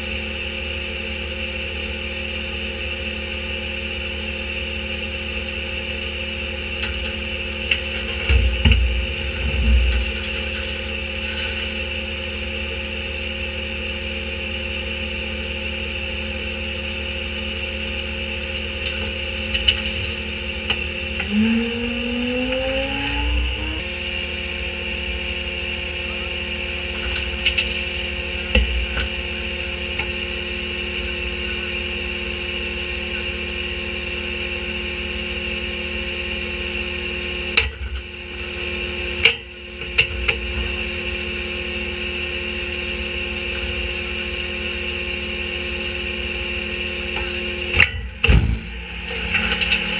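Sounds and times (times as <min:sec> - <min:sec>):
garbage truck diesel engine: 0:00.0 - 0:36.2
hydraulic packer whine: 0:00.0 - 0:49.9.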